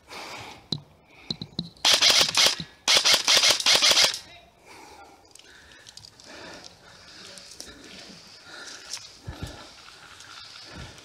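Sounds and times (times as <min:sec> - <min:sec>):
airsoft rifle full-auto bursts: 0:01.8 - 0:04.2.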